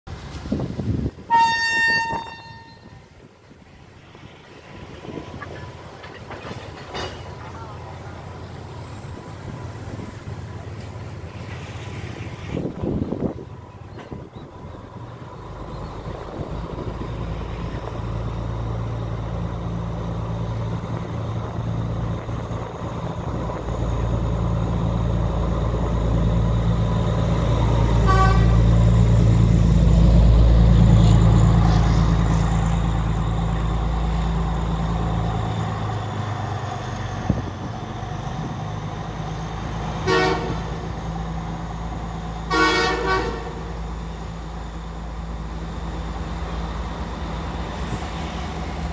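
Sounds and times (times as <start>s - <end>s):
diesel train engine droning: 0.1s - 48.9s
train horn blasts: 1.3s - 3.0s, 28.0s - 28.7s, 40.0s - 40.8s, 42.5s - 43.7s.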